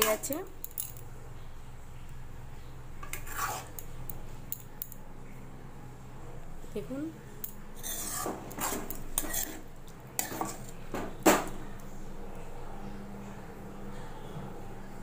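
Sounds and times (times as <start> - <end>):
spatula scraping a pan: 3.0 - 3.8, 7.8 - 10.8.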